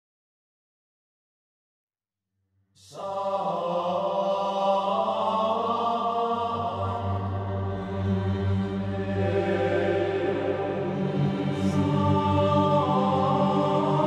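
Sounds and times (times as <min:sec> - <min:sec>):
male voices chanting: 0:02.8 - 0:14.0
low drone: 0:02.9 - 0:14.0.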